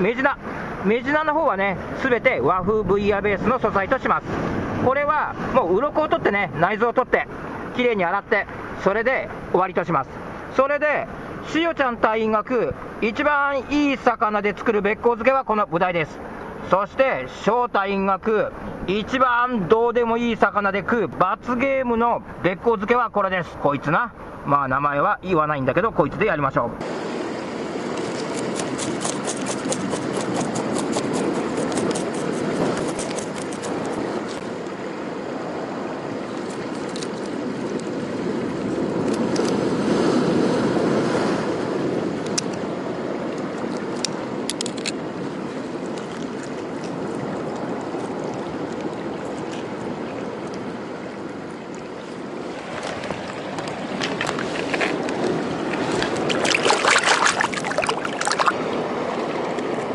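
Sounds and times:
seawater washing over rocks: 27.6 - 34.6, 43.4 - 59.9
scissors snipping: 28.0 - 34.4
knife scraping fish scales: 28.0 - 34.5
splashing water: 45.5 - 50.6, 51.6 - 59.7.

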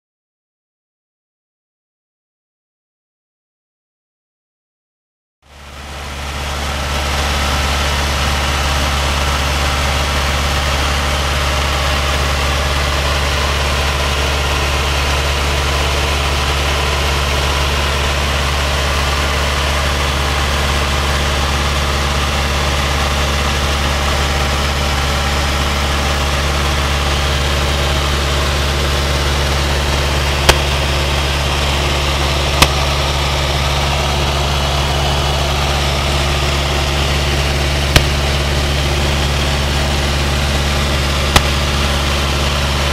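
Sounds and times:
airplane engine droning: 5.6 - 42.9
sharp clicks: 37.9 - 38.2, 41.3 - 41.6.

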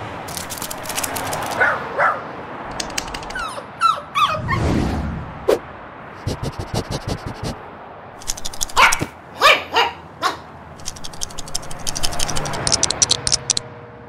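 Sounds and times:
dog's scurrying steps clicking: 0.3 - 1.7, 2.7 - 3.4, 8.2 - 9.1, 10.8 - 13.6
small dog barking: 1.6 - 2.3, 8.7 - 10.5.

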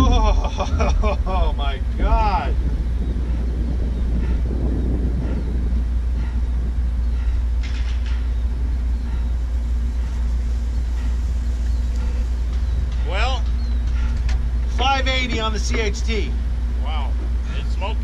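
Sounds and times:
aircraft engine idling: 0.0 - 18.0.

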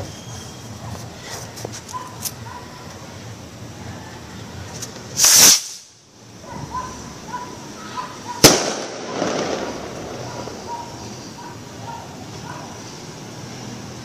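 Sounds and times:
firework detonations: 5.1 - 6.0, 8.4 - 11.4.

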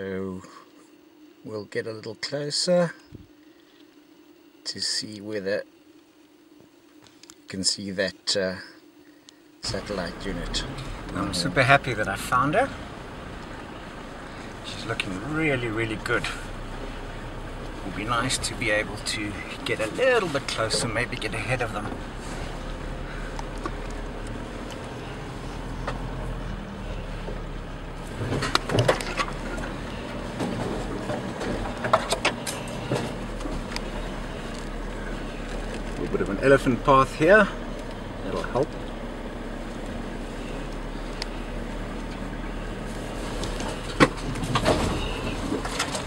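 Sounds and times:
engine and road drone: 9.6 - 46.0
knocks and rattles: 27.3 - 34.8, 43.3 - 46.0.

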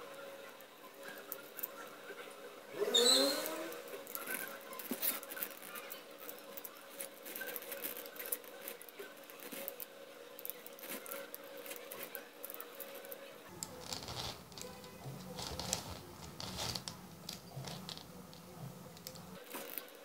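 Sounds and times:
faint steady hum: 0.0 - 20.0
wire ticking and scratching on plastic: 0.9 - 2.3, 2.9 - 20.0.

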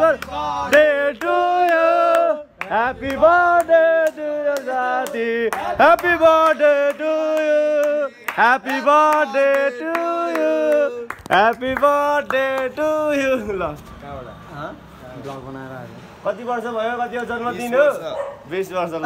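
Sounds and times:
man singing loudly: 0.0 - 13.4
hand claps: 0.1 - 12.8.

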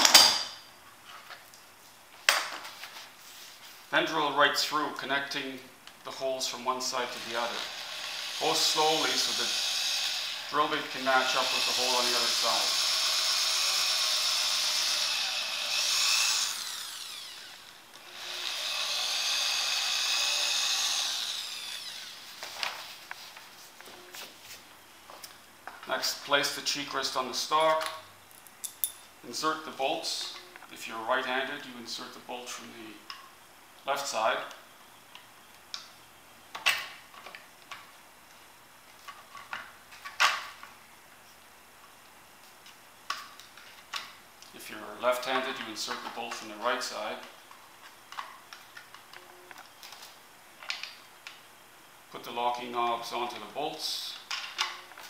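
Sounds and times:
electric drill whining: 7.1 - 22.4.

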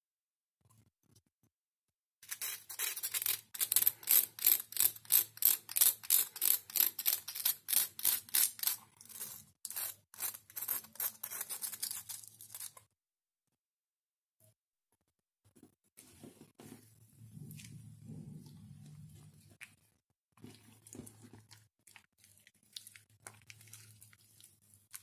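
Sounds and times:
plastic spoon scraping glitter: 2.2 - 12.8.

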